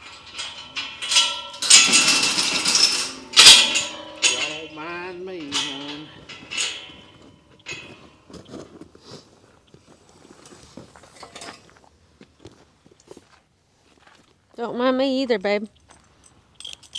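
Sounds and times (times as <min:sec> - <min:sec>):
metal pipe rails clinking: 0:00.0 - 0:08.4, 0:11.2 - 0:11.7, 0:15.8 - 0:16.9
footsteps: 0:00.0 - 0:14.4.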